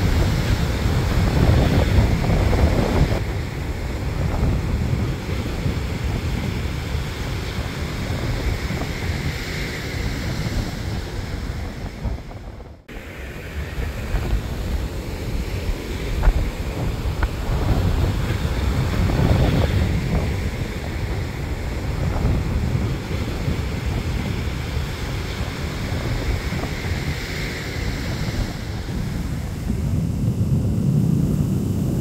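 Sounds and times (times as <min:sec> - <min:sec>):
ocean surf breaking: 0:00.0 - 0:32.0
wind rumbling on microphone: 0:00.0 - 0:32.0.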